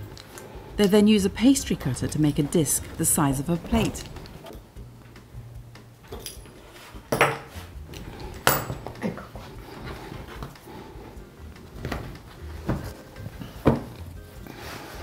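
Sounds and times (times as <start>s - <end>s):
low steady hum: 0.0s - 6.4s.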